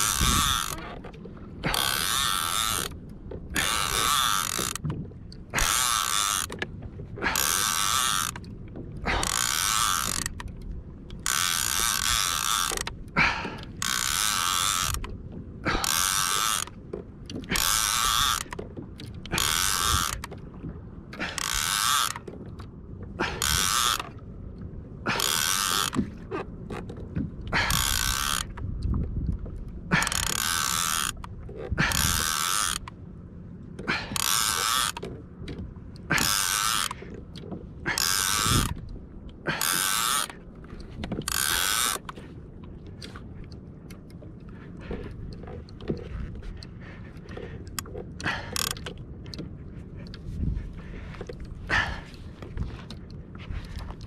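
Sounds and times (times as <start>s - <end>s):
fishing reel ratcheting: 0.0s - 1.0s, 1.6s - 6.6s, 7.2s - 16.7s, 17.3s - 20.4s, 21.2s - 22.4s, 23.2s - 24.1s, 25.1s - 26.0s, 27.6s - 28.6s, 29.9s - 32.9s, 34.0s - 35.1s, 36.1s - 37.0s, 37.9s - 38.8s, 39.5s - 40.4s, 41.0s - 42.2s, 47.6s - 49.4s.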